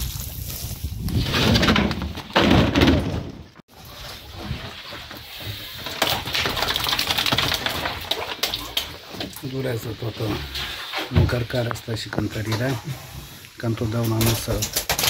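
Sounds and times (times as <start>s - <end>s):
water splashing: 3.7s - 13.5s
fish flapping against plastic: 5.8s - 8.8s.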